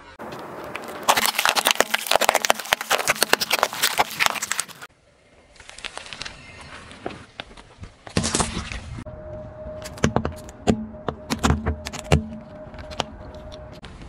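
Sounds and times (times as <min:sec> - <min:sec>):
squeeze balls popping under tyre: 0:00.2 - 0:04.9
tyre crushing an orange: 0:00.3 - 0:04.9.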